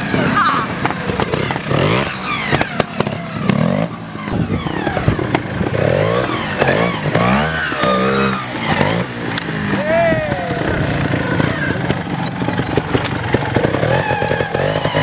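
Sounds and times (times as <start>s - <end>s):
motorcycle engines revving: 0.0s - 15.0s
knocks and clatter: 11.8s - 14.8s.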